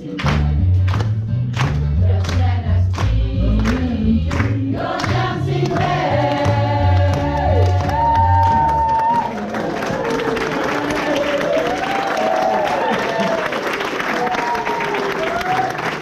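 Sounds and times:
group singing: 0.0 - 0.5, 2.0 - 8.7
musical accompaniment with beat: 0.0 - 9.3.

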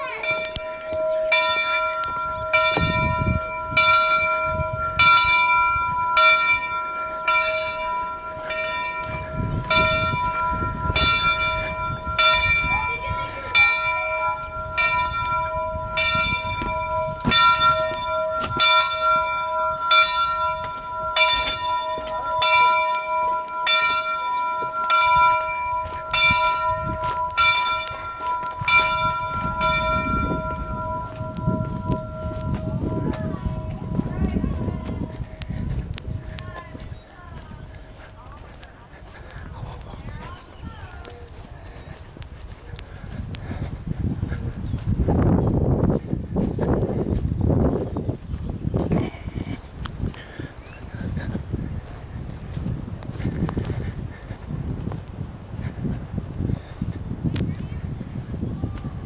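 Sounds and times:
large metal bell ringing: 0.0 - 39.4.

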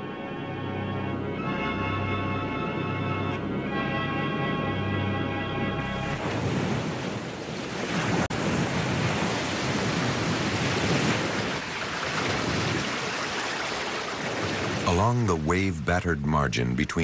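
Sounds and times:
music score: 0.0 - 6.2
waves breaking on rocks: 6.1 - 15.7.

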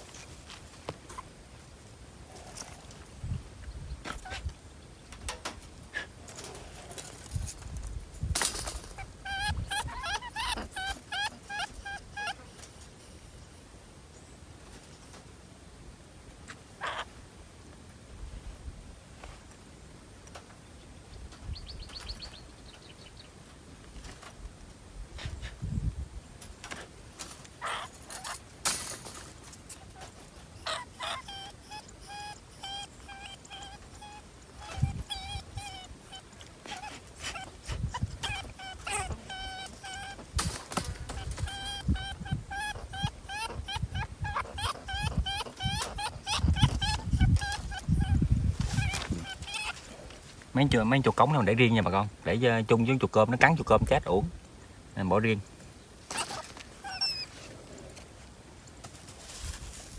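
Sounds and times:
wire cage traps rattling: 6.2 - 11.0, 27.2 - 30.4, 37.0 - 42.1
wire-mesh traps rattling: 6.3 - 9.2, 27.2 - 30.3
rat squeaking: 8.6 - 12.6, 16.8 - 17.1, 27.6 - 28.5, 29.7 - 50.0, 56.1 - 57.4.

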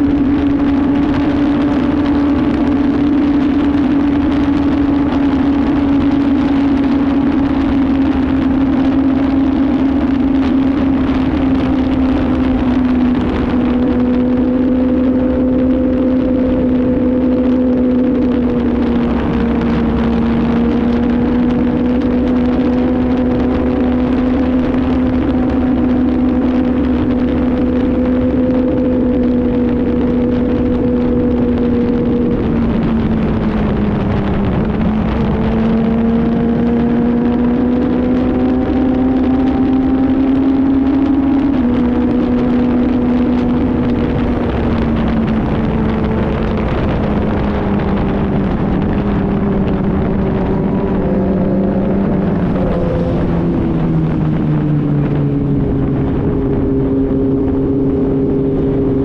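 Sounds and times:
motorcycle engine running: 0.0 - 59.0
wind on microphone: 0.0 - 59.0.

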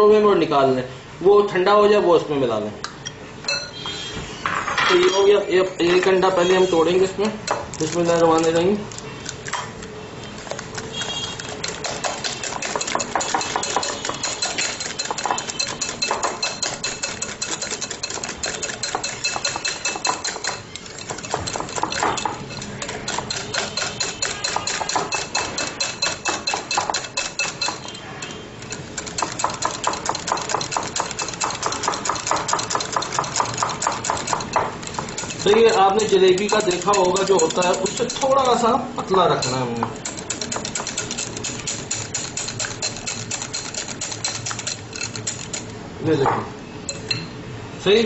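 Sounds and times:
whisk clicking against glass bowl: 7.2 - 9.6, 10.4 - 45.8.

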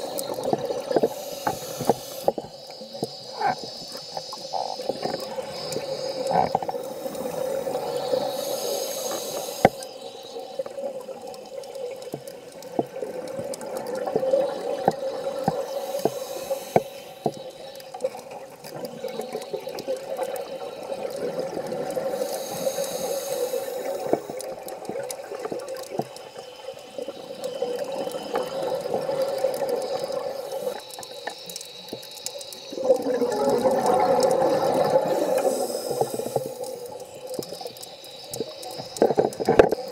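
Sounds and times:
regulator breathing hiss: 0.0 - 12.6, 13.5 - 39.9
small clicks: 0.0 - 39.9
bubbling exhalations: 32.7 - 36.9.

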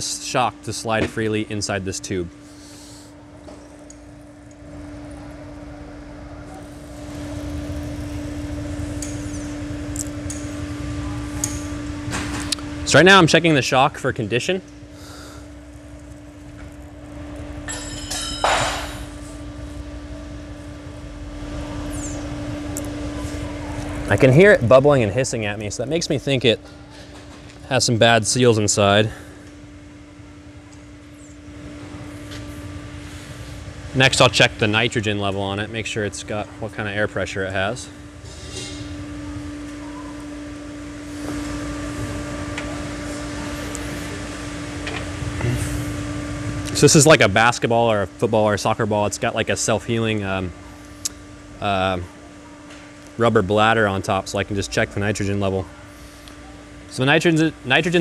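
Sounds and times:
steady low machine hum: 0.0 - 58.0
shock absorber hissing and bubbling: 6.4 - 11.1.

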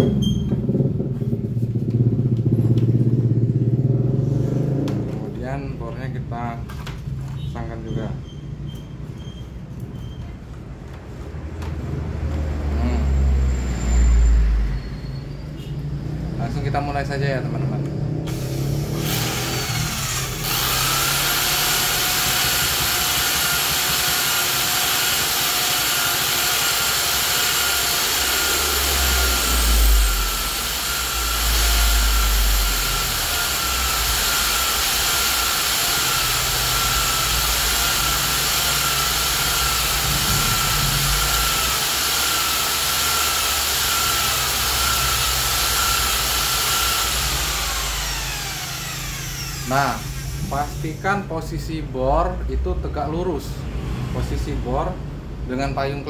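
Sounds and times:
electric hand drill whining: 18.2 - 51.3.

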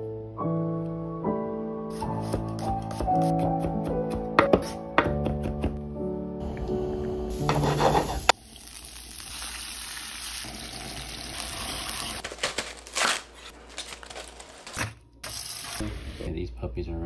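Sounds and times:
garlic sizzling in hot oil: 7.3 - 12.2.

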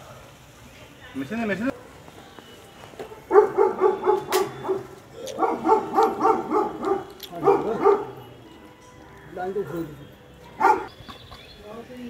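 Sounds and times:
dog yapping: 3.3 - 8.2, 10.6 - 10.9.

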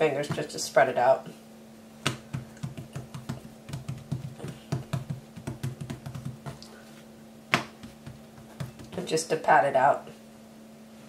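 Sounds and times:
fingertips patting bread dough: 2.0 - 6.8, 7.5 - 9.1.

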